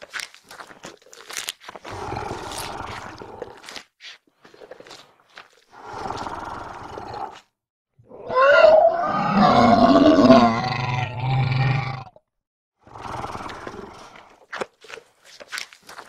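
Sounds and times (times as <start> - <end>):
dinosaur roar: 1.9 - 3.7, 8.1 - 12.2.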